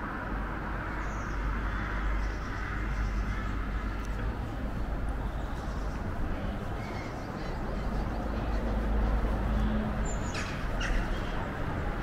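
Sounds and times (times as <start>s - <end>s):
distant vehicle engine hum: 0.0s - 12.0s
faint bird calls: 10.0s - 11.6s.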